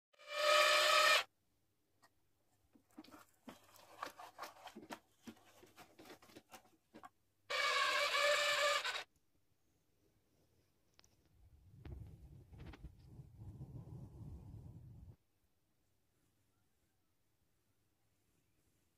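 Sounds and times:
toy car clicking and scraping: 3.0s - 9.1s.

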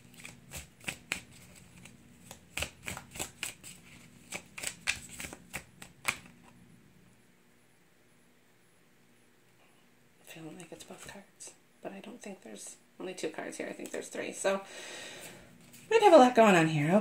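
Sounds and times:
cards shuffled by hand: 0.0s - 6.6s.

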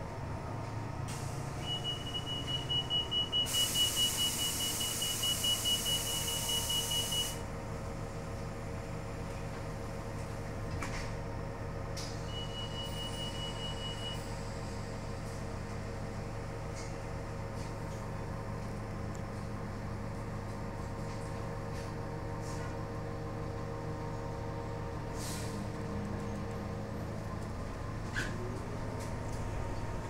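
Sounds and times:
bus drivetrain hum: 0.0s - 30.0s
hiss of released air: 25.2s - 25.6s.

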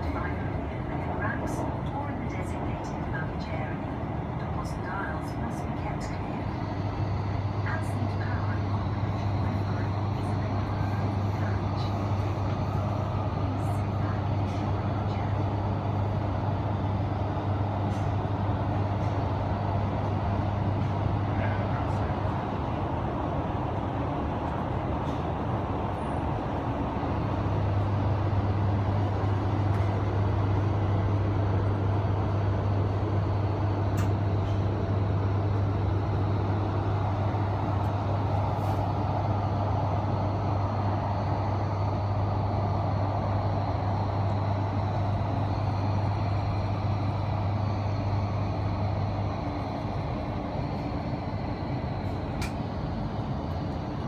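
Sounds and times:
train rumbling inside carriage: 0.0s - 54.0s.

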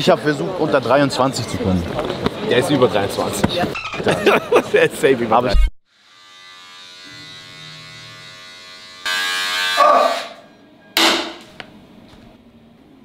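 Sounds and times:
electric razor buzzing: 5.9s - 10.4s.

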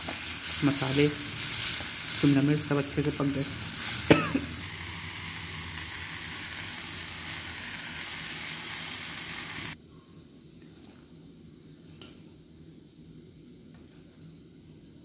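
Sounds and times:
vegetables sizzling in hot oil: 0.0s - 9.8s.

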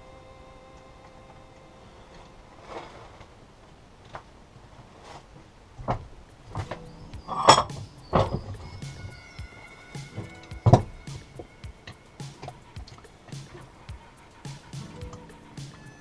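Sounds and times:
metal tools knocking and clinking: 6.6s - 8.7s.

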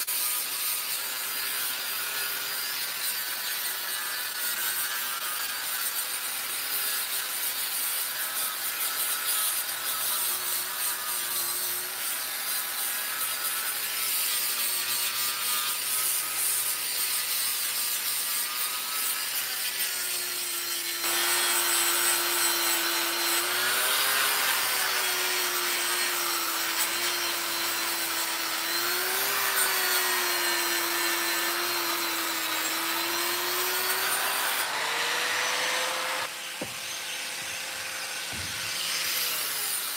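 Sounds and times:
angle grinder grinding steel: 0.0s - 39.9s.

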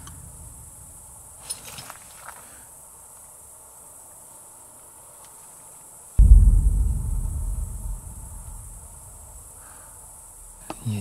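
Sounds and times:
insects chirring: 0.0s - 11.0s.

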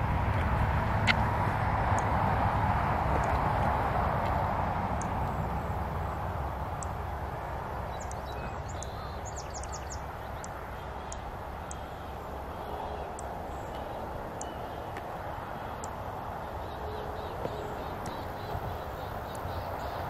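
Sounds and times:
wind rumble and hiss: 0.0s - 20.0s
small birds chirping: 5.0s - 20.0s.

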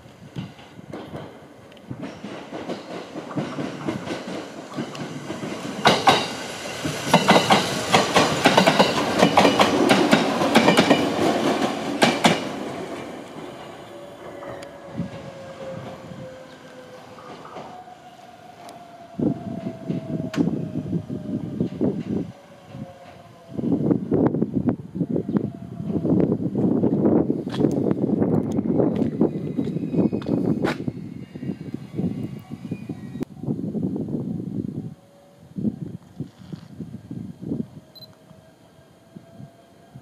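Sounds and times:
train wheels clacking on rails: 0.4s - 16.0s.

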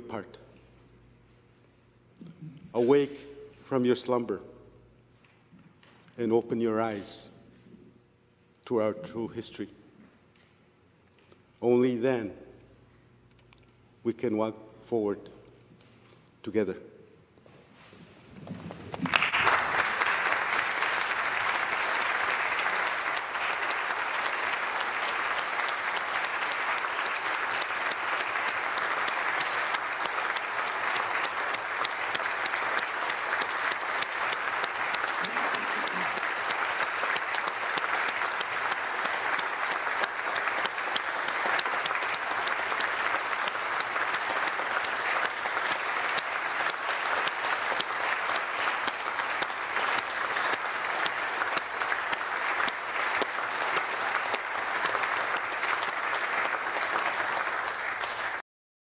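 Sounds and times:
crowd applause: 18.8s - 58.4s.

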